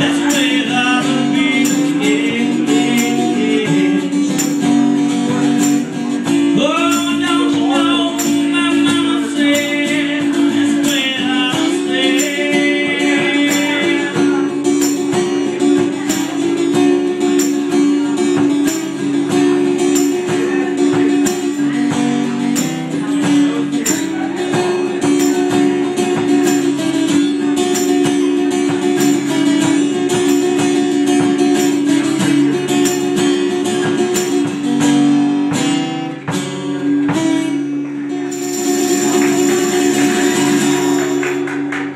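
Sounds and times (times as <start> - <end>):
person singing: 0.0 - 30.2, 38.3 - 41.4
acoustic guitars strumming: 0.0 - 41.9.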